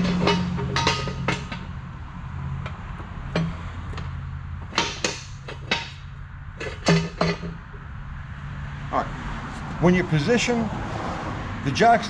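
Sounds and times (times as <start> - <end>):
metal clicks and knocks: 0.0 - 1.8, 2.4 - 7.8.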